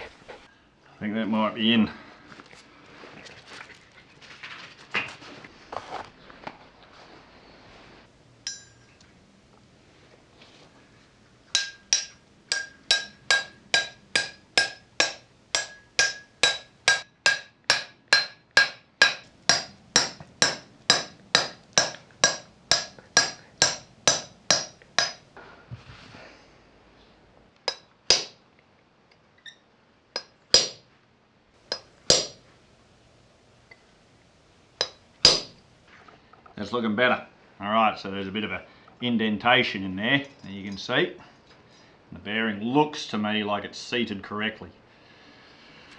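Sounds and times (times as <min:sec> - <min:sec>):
hammer tapping on metal: 0:11.5 - 0:25.2, 0:31.7 - 0:32.4, 0:34.8 - 0:35.6.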